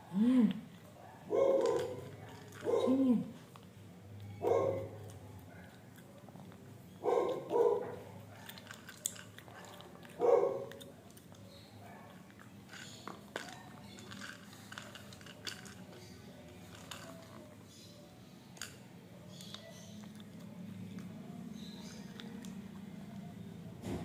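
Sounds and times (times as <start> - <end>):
dog chewing and crunching treat: 0.7 - 23.7
small dog barking: 1.0 - 3.2, 4.4 - 5.8, 7.0 - 8.6, 9.6 - 10.7.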